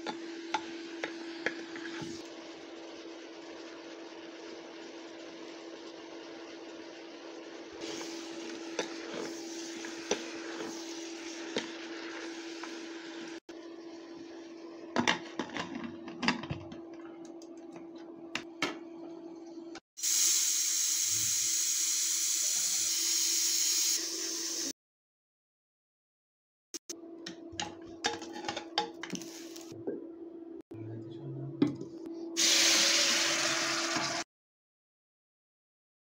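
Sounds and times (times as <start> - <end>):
meat and onions sizzling: 0.0 - 13.4, 20.0 - 24.7, 32.4 - 34.2
steam hissing from valve: 7.8 - 11.6, 20.0 - 24.7, 32.4 - 34.2.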